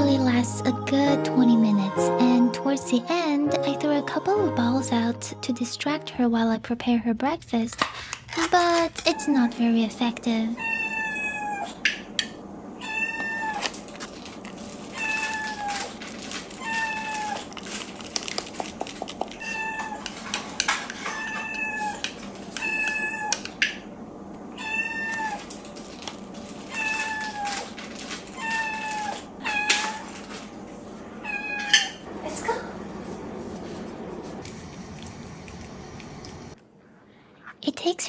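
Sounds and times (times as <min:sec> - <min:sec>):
kitten meowing: 0:10.6 - 0:11.7, 0:12.8 - 0:13.6, 0:21.2 - 0:22.0, 0:22.6 - 0:23.4, 0:24.6 - 0:25.4.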